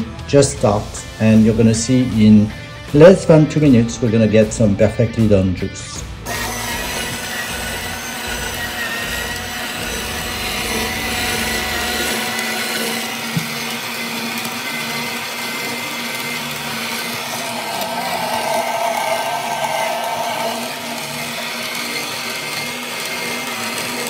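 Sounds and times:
juicer grinding apples: 6.2 - 24.0.

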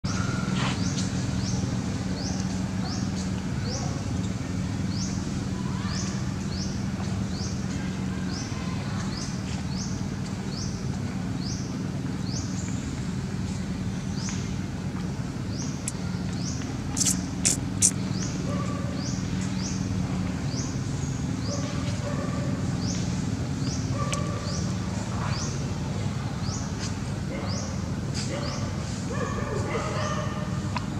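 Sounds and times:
high rising chirp: 17.0 - 17.9
sharp clicks: 17.0 - 18.0.

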